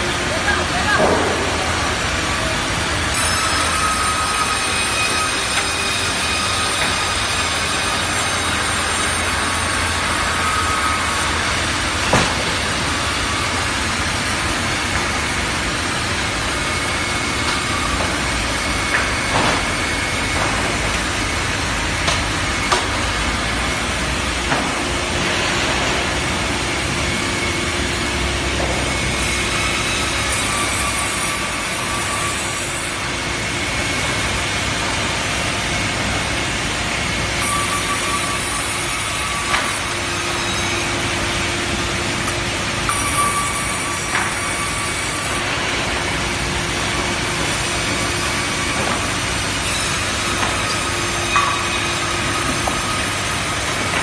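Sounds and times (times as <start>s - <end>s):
band saw sawing timber: 2.6s - 24.4s.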